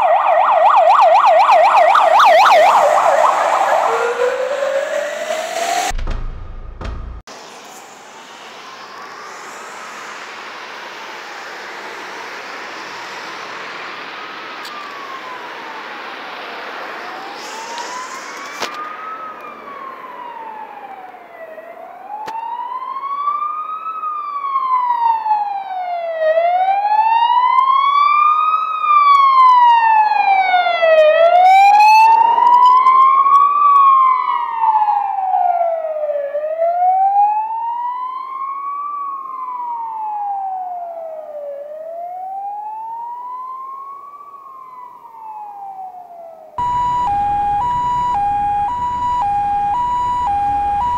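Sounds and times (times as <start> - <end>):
ambulance siren wailing: 0.0 - 6.0, 8.4 - 50.9
passing car road noise: 0.1 - 21.8, 46.6 - 50.9.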